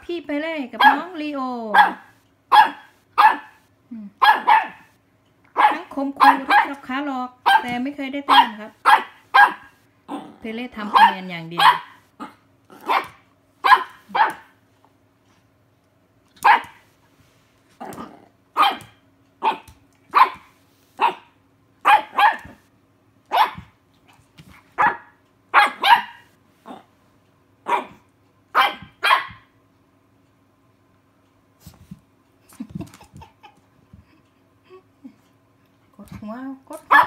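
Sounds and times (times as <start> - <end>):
puppy barking: 0.8 - 3.6, 4.2 - 6.8, 7.4 - 10.2, 10.9 - 14.6, 16.4 - 16.8, 18.6 - 22.6, 23.3 - 23.8, 24.8 - 26.9, 27.6 - 29.6, 36.8 - 37.0.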